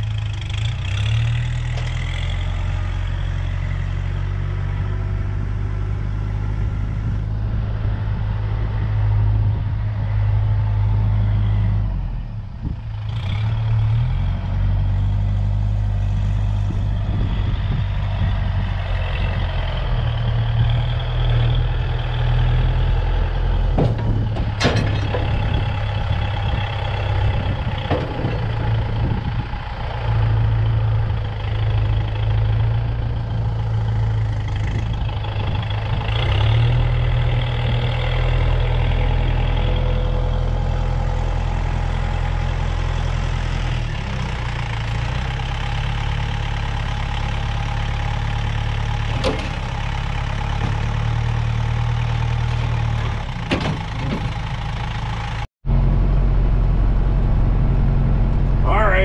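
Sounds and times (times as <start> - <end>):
tractor diesel engine under load: 0.0 - 59.0
metal clanks: 23.7 - 26.0, 27.7 - 29.0.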